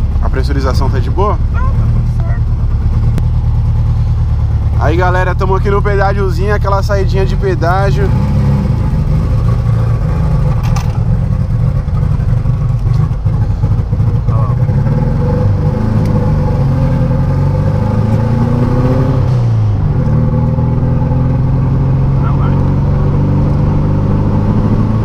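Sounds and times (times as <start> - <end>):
car engine accelerating: 0.0 - 25.0.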